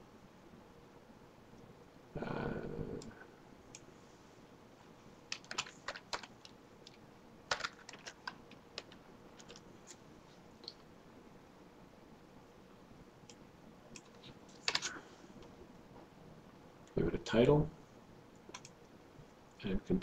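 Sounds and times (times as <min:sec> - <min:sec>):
typing on computer keyboard: 0:05.3 - 0:09.7, 0:13.3 - 0:14.9, 0:18.5 - 0:18.8.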